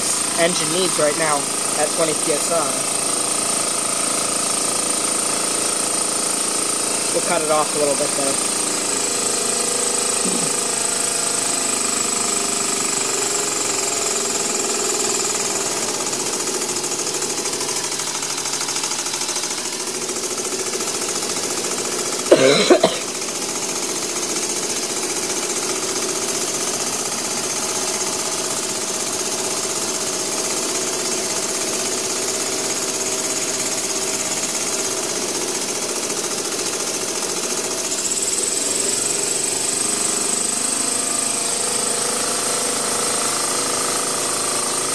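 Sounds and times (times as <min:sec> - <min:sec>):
small steam engine chattering: 0:00.0 - 0:11.7.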